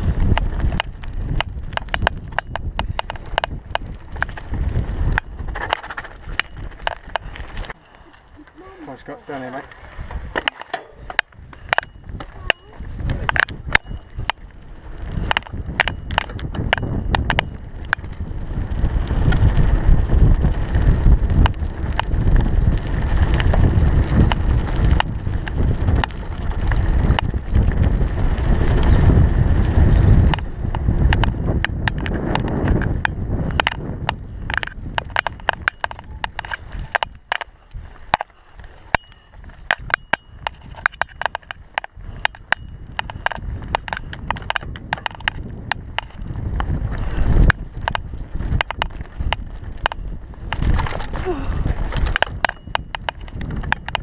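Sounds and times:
tyres crunching over stones: 0.0 - 19.5, 30.4 - 54.0
bike rattling: 0.0 - 54.0
wind rushing over microphone: 0.0 - 54.0.

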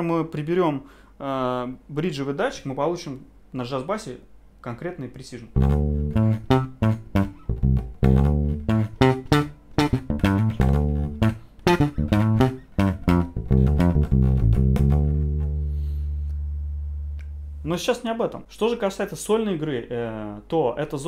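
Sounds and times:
bass guitar plucked notes: 5.5 - 17.6.

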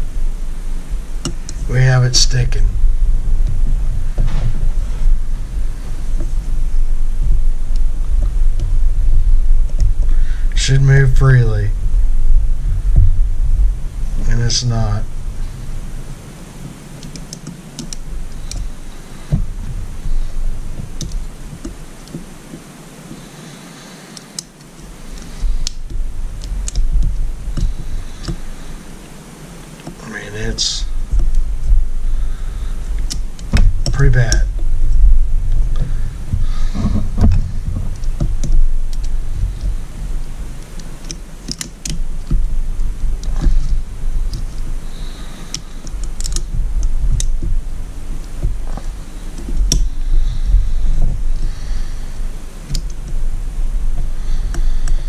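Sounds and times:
dull handling thumps: 0.0 - 22.8, 24.8 - 55.0
small metallic clicks: 40.6 - 42.4, 44.3 - 47.5, 48.2 - 50.0, 52.6 - 53.2.

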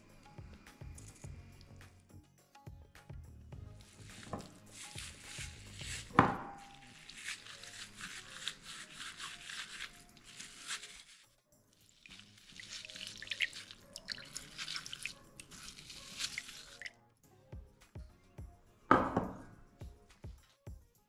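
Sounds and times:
watermelon flesh squelching: 3.8 - 11.2, 11.8 - 16.9
juice dripping into bowl: 11.8 - 17.0.

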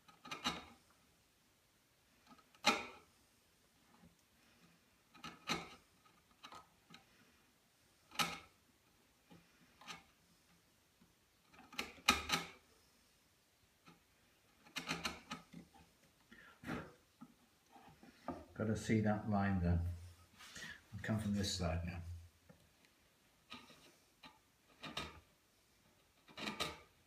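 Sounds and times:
chisel scraping wood: 26.0 - 26.9.

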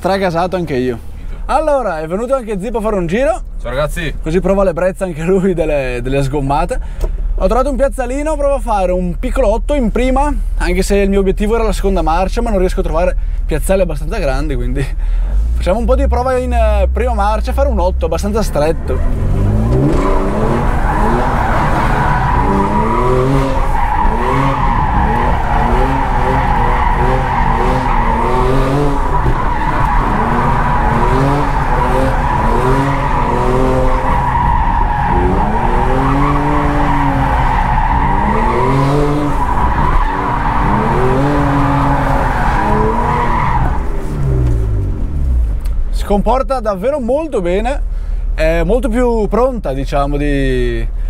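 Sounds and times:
car engine revving: 15.3 - 45.9
tyres squealing: 18.6 - 44.4.

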